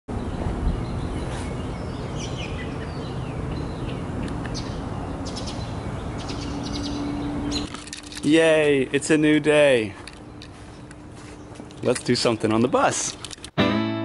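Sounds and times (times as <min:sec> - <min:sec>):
birds chirping: 0:00.1 - 0:13.5
outdoor background hiss: 0:00.1 - 0:13.6.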